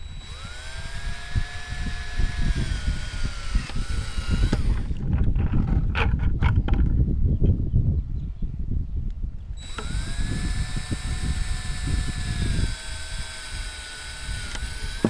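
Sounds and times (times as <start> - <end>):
power drill boring plastic: 0.0 - 6.2, 9.6 - 15.0.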